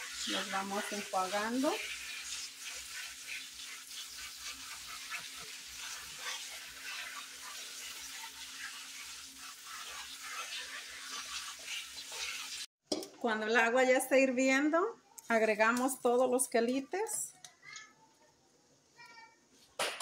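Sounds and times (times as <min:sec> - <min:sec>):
faucet sprayer hissing: 0:00.0 - 0:12.7.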